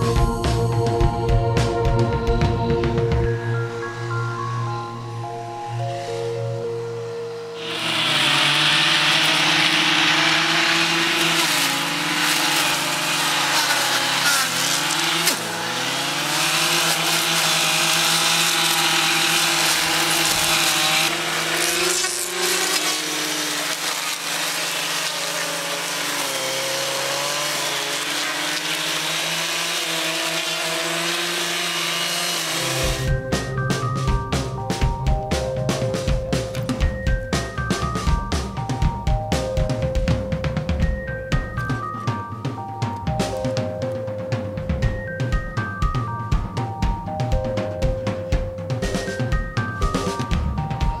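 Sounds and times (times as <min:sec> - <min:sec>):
power tool engine revving: 0:07.6 - 0:34.0.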